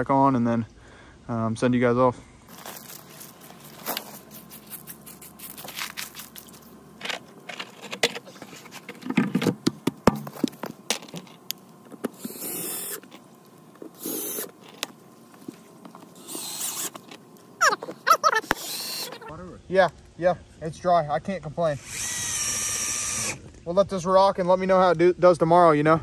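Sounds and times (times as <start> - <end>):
cordless drill driving screws: 12.1 - 13.2, 14.0 - 14.6, 16.2 - 17.2, 18.4 - 19.2, 21.8 - 23.4.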